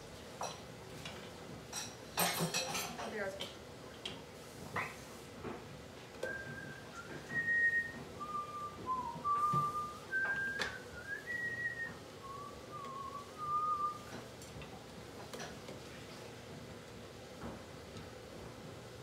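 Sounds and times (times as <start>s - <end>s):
person whistling a tune: 6.2s - 14.1s.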